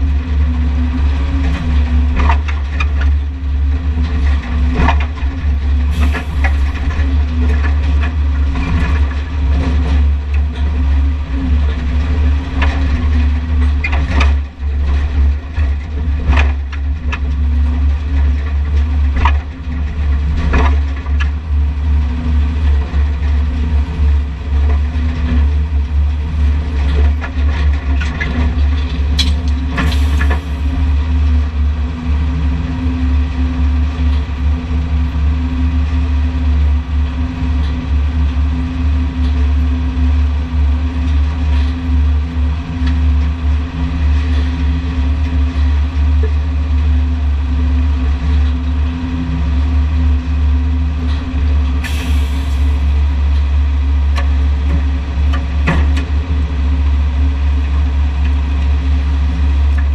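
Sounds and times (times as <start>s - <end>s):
heavy machinery engine rumbling: 0.0s - 59.9s.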